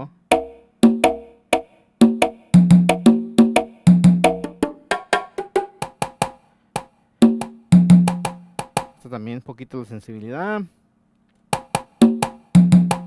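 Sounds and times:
electronic drum pad tones: 0.3s - 6.2s, 11.6s - 13.0s.

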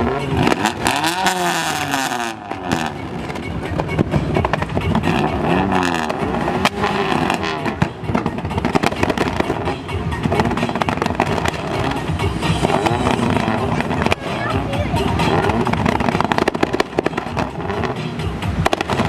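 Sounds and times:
background music: 0.0s - 19.0s
car engines revving: 0.0s - 19.0s
sharp exhaust bangs: 0.0s - 19.0s.

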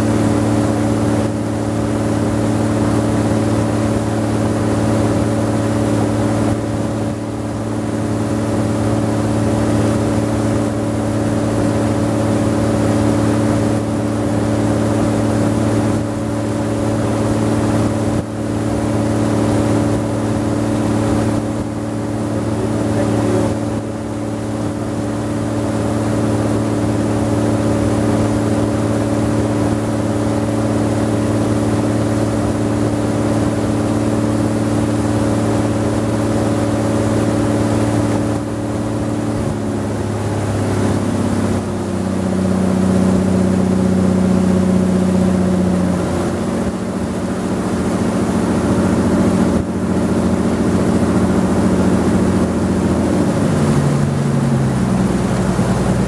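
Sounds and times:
boat engine droning: 0.0s - 56.0s.

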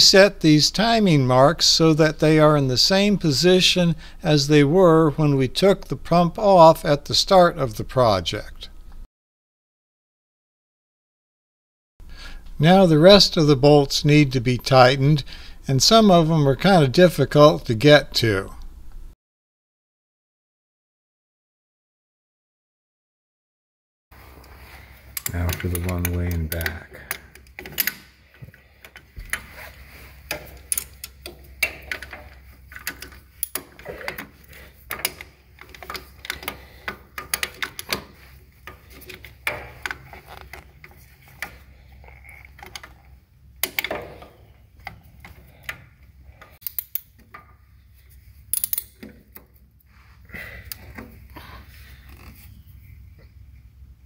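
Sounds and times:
wrench clicking on bolts: 30.3s - 40.6s, 46.6s - 47.4s, 48.5s - 49.5s.

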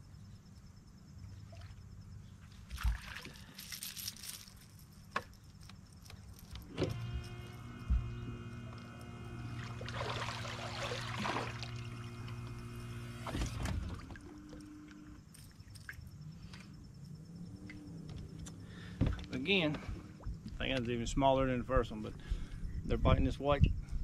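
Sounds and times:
water splashing: 2.7s - 3.6s, 9.4s - 12.6s
electric motor humming: 6.6s - 15.2s
motor cutting off with knock: 6.7s - 15.0s.

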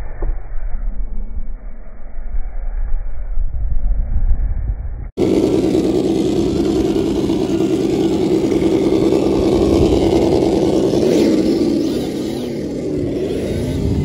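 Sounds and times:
rc car motor whining: 5.2s - 14.0s.

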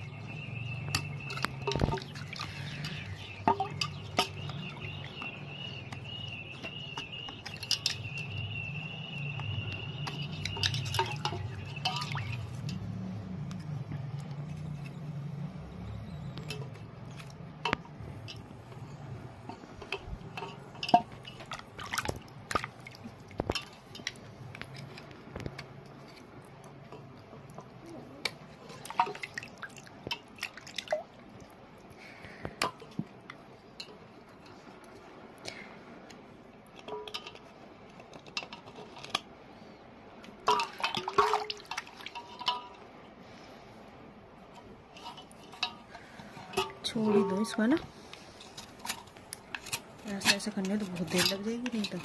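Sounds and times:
water dripping: 0.0s - 37.4s, 40.2s - 43.0s.

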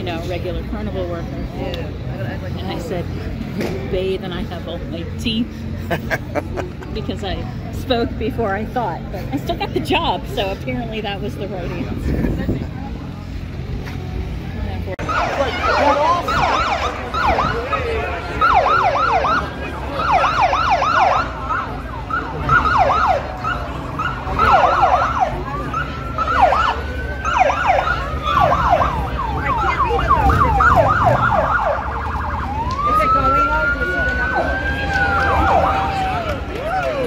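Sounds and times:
siren wailing: 15.0s - 36.3s
motorcycle sirens chirping: 15.0s - 37.0s.

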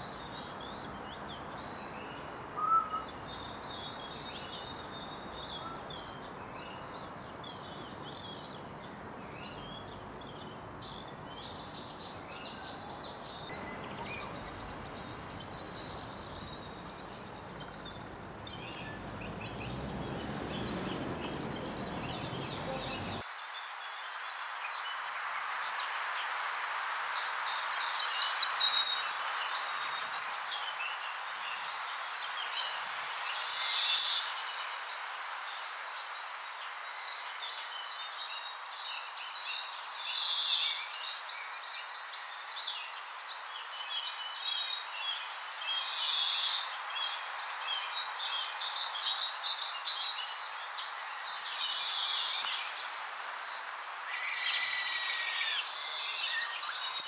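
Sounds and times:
birds chirping and calling: 13.4s - 23.2s, 54.0s - 57.0s.

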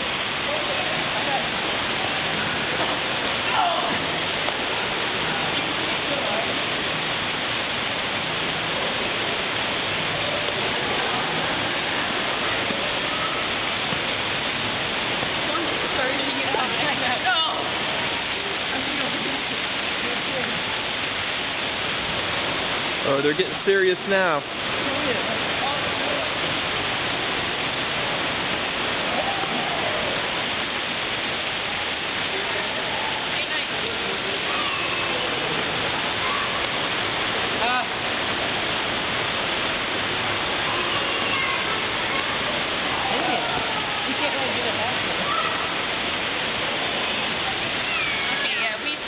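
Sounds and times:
steady rushing noise: 0.0s - 49.0s
faint voice: 32.3s - 36.8s, 47.0s - 49.0s.

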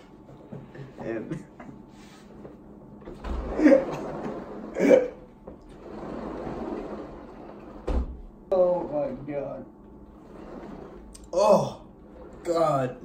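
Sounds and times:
young men laughing: 0.4s - 1.9s.

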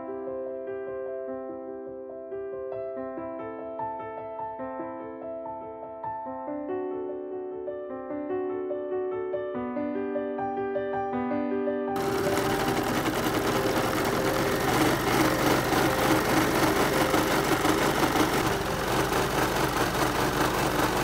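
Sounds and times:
sewing machine needle chatter: 12.0s - 21.0s.

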